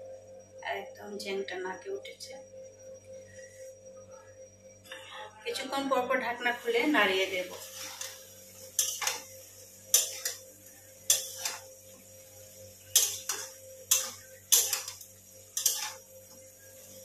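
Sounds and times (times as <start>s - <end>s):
metal spatula scraping a steel pan: 7.5s - 9.3s, 9.9s - 10.4s, 11.0s - 11.7s, 12.9s - 16.1s.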